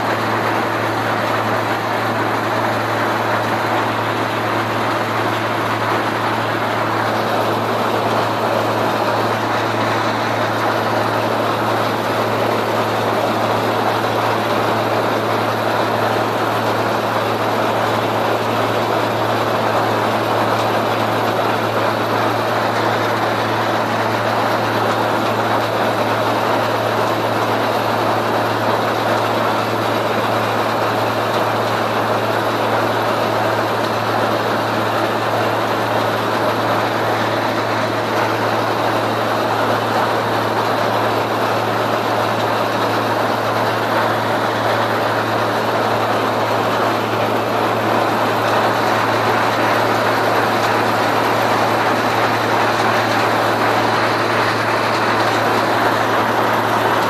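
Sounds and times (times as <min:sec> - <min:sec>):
farm machinery engine hum: 0:00.0 - 0:57.0.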